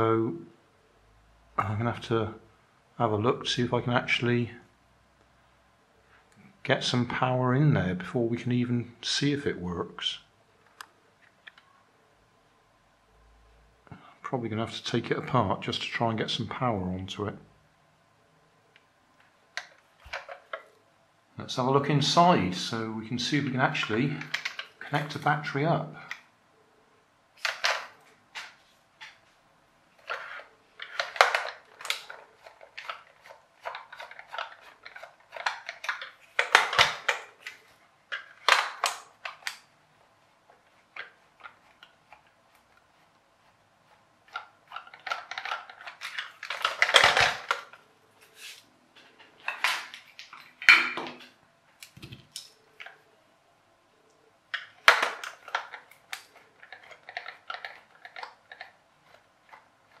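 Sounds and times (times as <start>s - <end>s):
screwdriver clicking and scraping: 54.6s - 60.0s.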